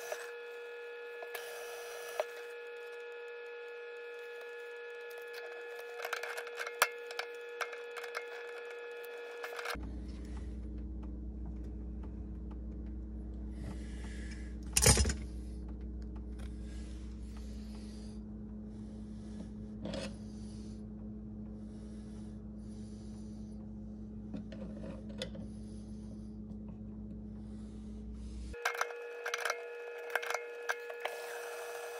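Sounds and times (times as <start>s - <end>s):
metal scraping and rubbing: 0.0s - 9.8s
steady low hum: 0.0s - 31.9s.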